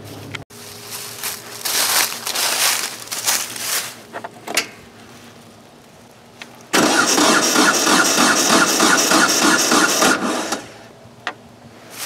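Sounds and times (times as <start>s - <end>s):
footsteps crunching through dry leaves: 0.0s - 4.1s.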